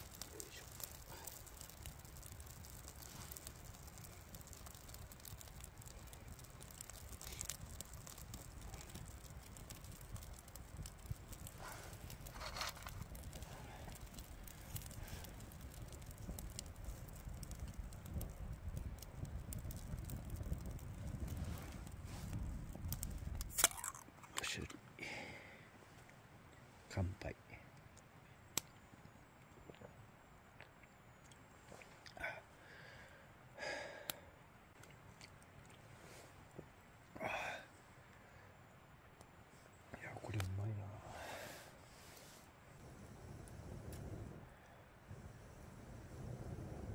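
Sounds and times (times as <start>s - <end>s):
person sighing breathily: 25.0s - 25.7s, 32.1s - 34.3s, 37.2s - 37.8s.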